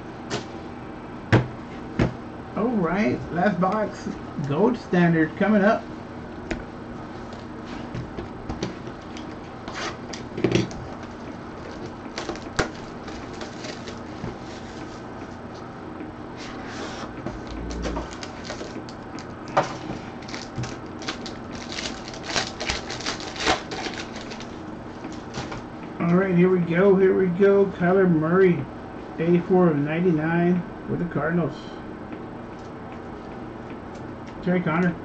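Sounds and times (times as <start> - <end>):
foil crinkling and tearing: 11.0 - 14.2, 18.1 - 19.3, 20.0 - 24.6.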